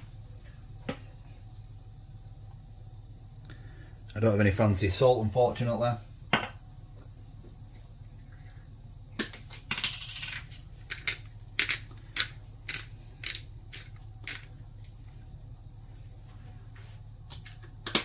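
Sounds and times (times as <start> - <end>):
pepper grinder crunching: 9.8 - 14.6.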